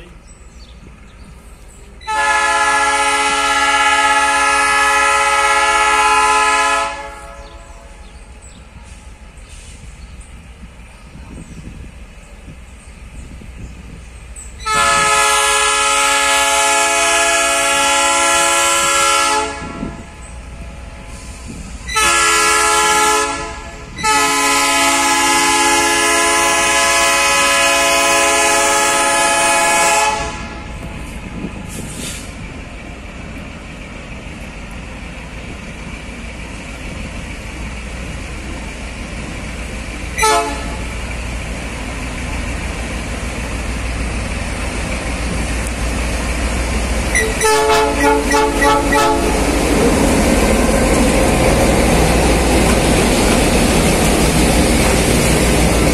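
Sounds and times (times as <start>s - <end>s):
diesel engines rumbling: 0.0s - 55.9s
locomotive horn blasts: 2.0s - 8.0s, 14.6s - 20.2s, 21.9s - 30.8s, 40.2s - 41.0s, 47.1s - 49.5s.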